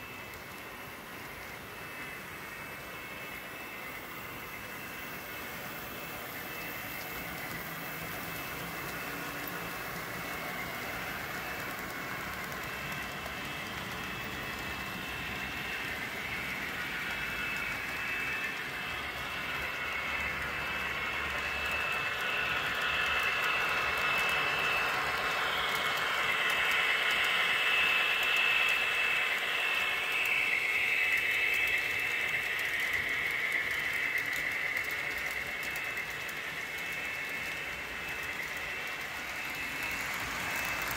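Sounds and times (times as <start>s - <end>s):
model train motor whine: 0.0s - 40.9s
wheels rattling on rails: 0.0s - 40.9s.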